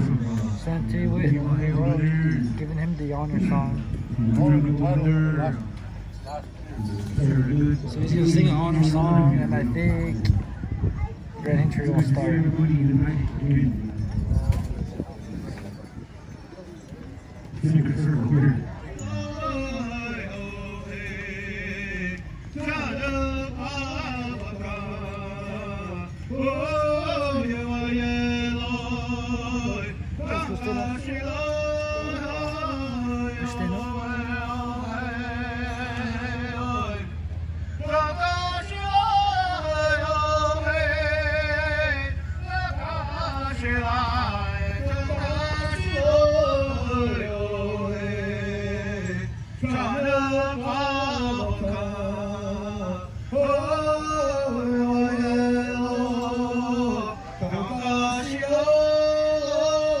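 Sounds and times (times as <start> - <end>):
man singing long notes: 17.6 - 60.0.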